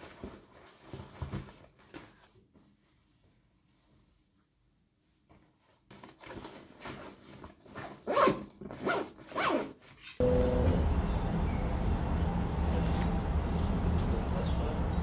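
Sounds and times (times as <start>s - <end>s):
backpack zipper pulled: 8.0s - 9.8s
vehicle interior rumble: 10.2s - 15.0s.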